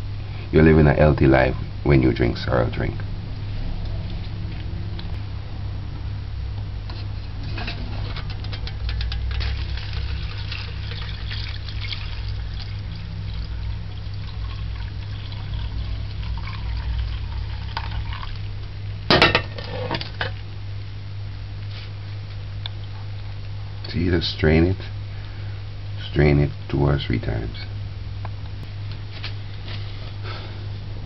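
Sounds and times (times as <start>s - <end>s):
liquid pouring through strainer: 7.4s - 18.6s.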